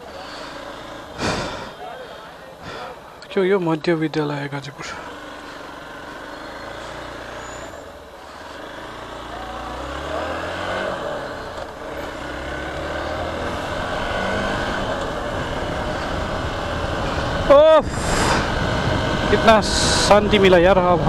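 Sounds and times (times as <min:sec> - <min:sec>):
motorcycle engine running: 0:00.0 - 0:21.0
wind noise: 0:15.4 - 0:21.0.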